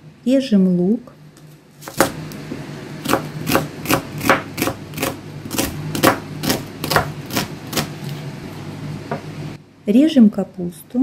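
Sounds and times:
knife slicing onion: 0:01.8 - 0:02.4, 0:03.0 - 0:08.3.

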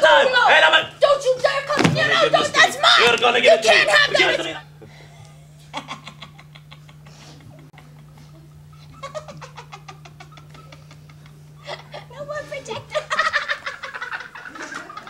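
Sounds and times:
low electrical hum: 0:00.0 - 0:15.0
woman cackling laughter: 0:05.2 - 0:12.1, 0:12.8 - 0:15.0.

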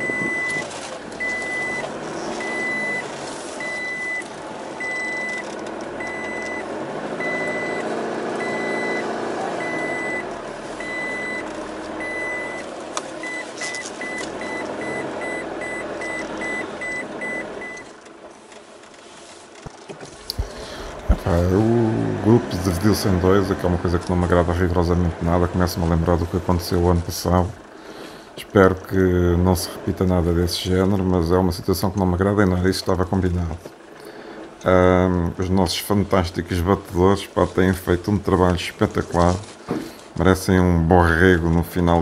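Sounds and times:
electronic warning beep: 0:00.0 - 0:17.9
vehicle engine running: 0:00.0 - 0:42.0.

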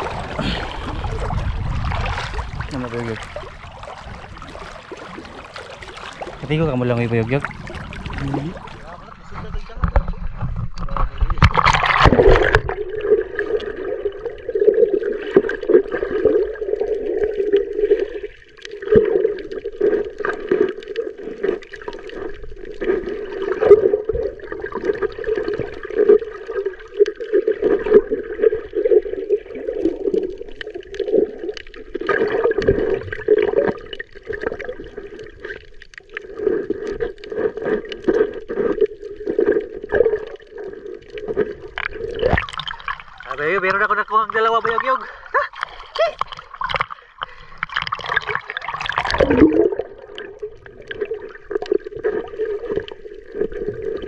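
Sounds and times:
splash into water: 0:00.0 - 0:09.1, 0:11.0 - 0:14.0, 0:41.3 - 0:43.6, 0:47.7 - 0:54.0
muffled underwater gurgle: 0:00.0 - 0:54.0.

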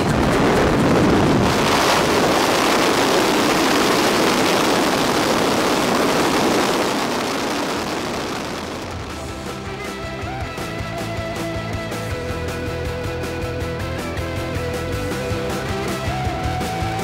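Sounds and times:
slipstream wind rushing: 0:00.0 - 0:11.2
turboprop engine noise: 0:00.0 - 0:17.0.

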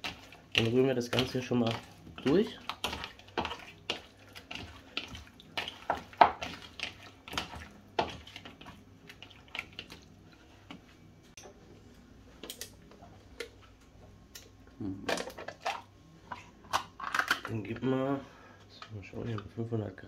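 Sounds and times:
wet squelches of mixing meat: 0:00.0 - 0:11.0.

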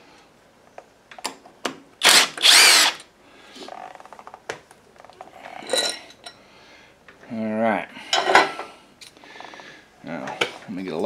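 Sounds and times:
cordless drill motor whirring: 0:02.0 - 0:03.1.

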